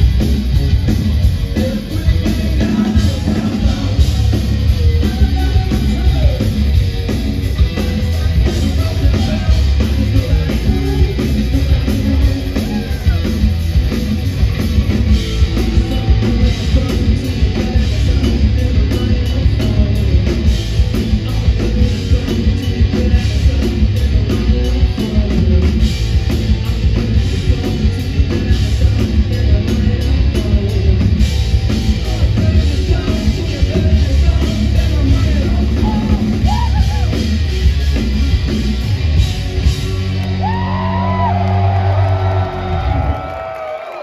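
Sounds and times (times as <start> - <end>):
sung vocals: 0.0 - 39.8
overdriven bass guitar: 0.0 - 43.5
pounding drum kit: 0.0 - 44.0
crowd whooping: 12.0 - 16.6, 35.6 - 44.0.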